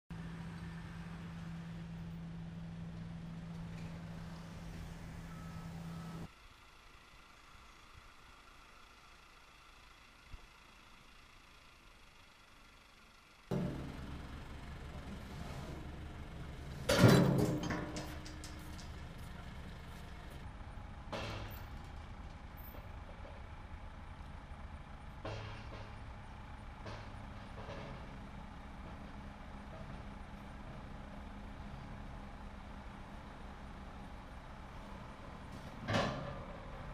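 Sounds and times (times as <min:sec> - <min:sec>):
engine running steadily: 0:00.1 - 0:36.9
metal beams clanking: 0:13.5 - 0:20.4.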